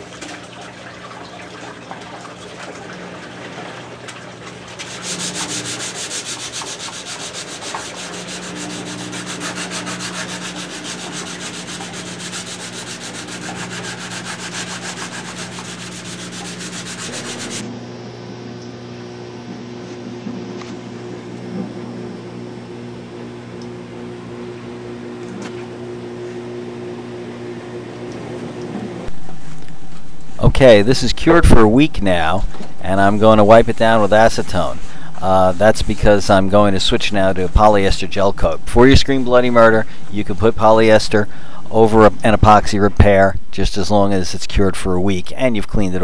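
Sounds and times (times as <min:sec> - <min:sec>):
low steady machine hum: 0:00.0 - 0:46.0
hand sanding with sandpaper: 0:04.7 - 0:17.6.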